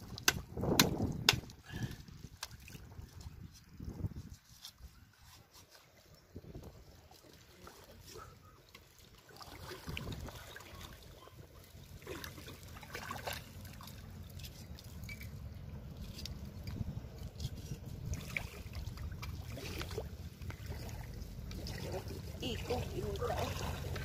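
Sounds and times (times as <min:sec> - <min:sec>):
seawater trickling and lapping: 0:00.0 - 0:24.0
steady low rumble: 0:11.9 - 0:24.0.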